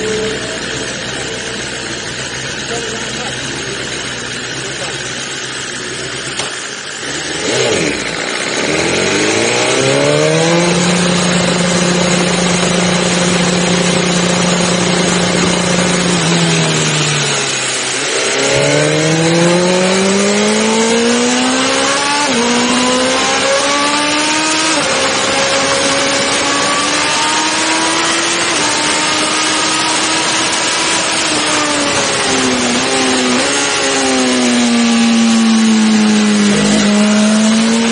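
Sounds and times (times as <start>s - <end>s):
motorcycle engine revving: 0.0s - 37.9s.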